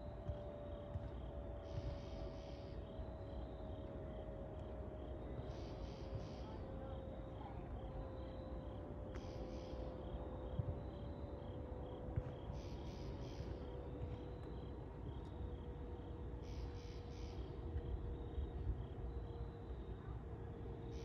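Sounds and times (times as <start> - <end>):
faint steady hum: 0.0 - 21.0
insects chirping: 0.0 - 21.0
raspy insect call: 1.6 - 3.8, 9.1 - 10.2, 12.3 - 19.9.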